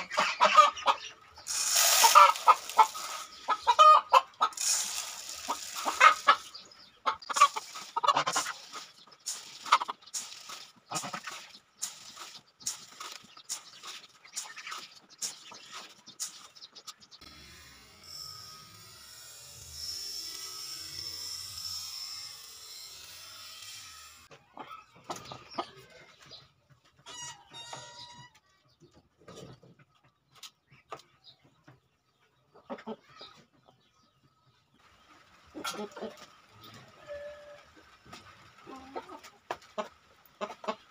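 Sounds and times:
chickens clucking: 0.0 - 17.3, 24.3 - 40.9
corn kernels rattling in plastic bucket: 1.4 - 6.6, 7.3 - 15.4.

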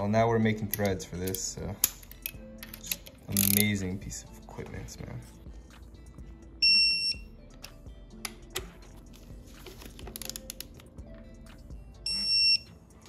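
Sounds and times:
wrench and socket clicks: 0.7 - 3.8, 10.1 - 10.9
torque wrench beeping: 12.0 - 12.7.

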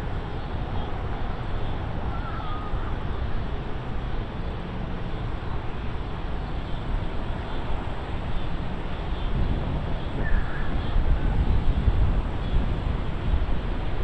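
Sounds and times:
wind buffeting microphone: 6.2 - 14.0.

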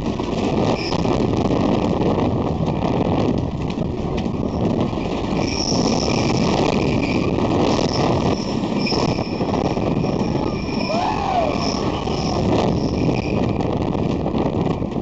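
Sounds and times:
roller coaster cars rattling: 0.0 - 15.0
high-pitched wheel squeals: 0.7 - 1.1, 4.4 - 13.7.

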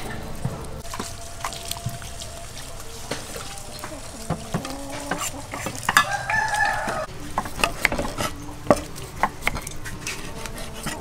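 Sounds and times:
rooster crowing: 1.1 - 7.2.

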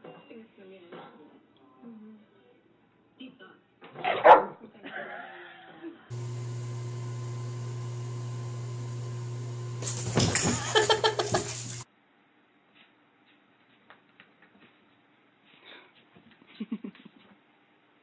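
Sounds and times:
motor hum: 6.1 - 11.8
cat splashing in water: 9.6 - 11.8.

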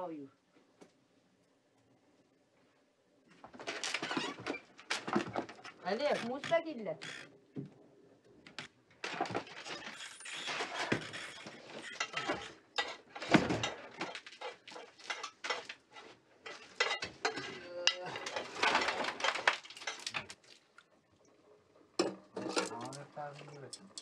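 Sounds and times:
dishes and pots clinking: 11.8 - 20.3, 22.0 - 24.0.

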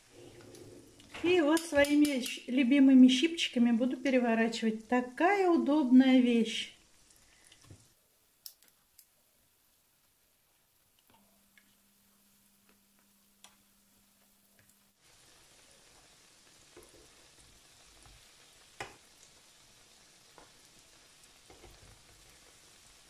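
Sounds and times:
pastries sizzling in hot oil: 0.0 - 23.0
tongs clicking: 1.0 - 2.4.

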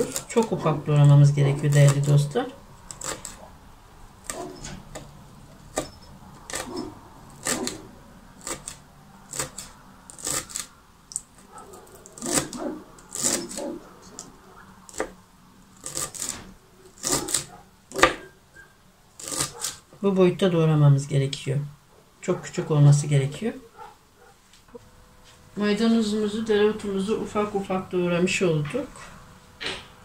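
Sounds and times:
knife chopping herbs on cutting board: 0.0 - 2.3, 2.9 - 3.4, 4.2 - 5.1, 6.5 - 7.8, 8.4 - 10.6, 12.0 - 14.3, 14.9 - 15.2, 15.8 - 16.4, 17.0 - 18.3, 19.2 - 19.8.

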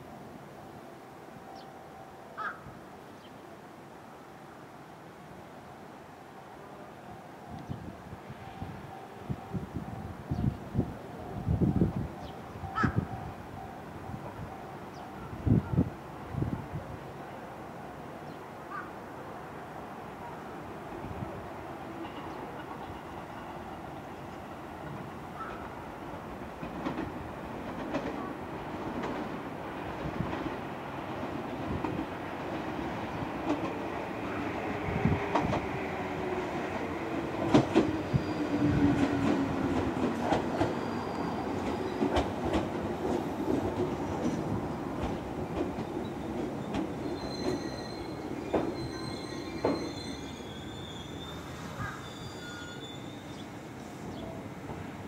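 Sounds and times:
train wheels clicking over rail joints: 24.8 - 32.7, 37.2 - 47.8
high brake squeals: 40.8 - 41.4, 47.0 - 53.5.

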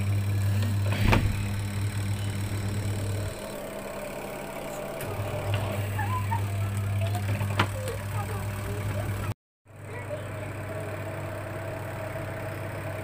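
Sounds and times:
washing machine motor humming: 0.0 - 13.0.

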